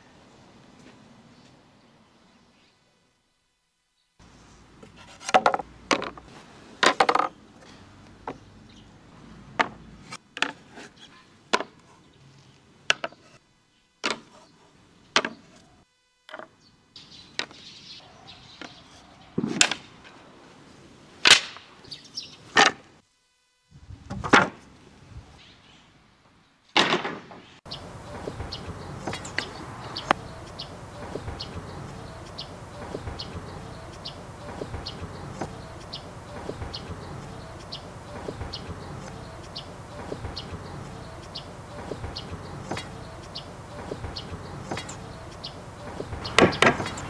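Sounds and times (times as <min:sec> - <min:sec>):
wooden boards knocking: 0:05.2 - 0:06.2, 0:45.8 - 0:47.0.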